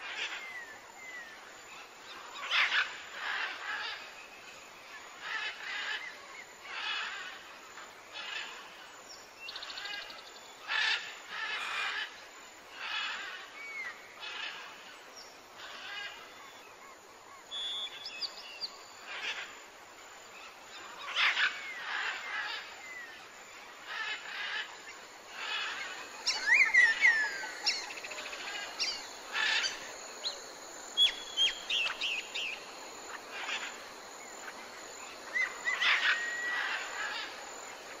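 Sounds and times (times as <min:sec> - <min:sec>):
faint background hiss: 0:00.0 - 0:38.0
birds chirping: 0:25.3 - 0:38.0.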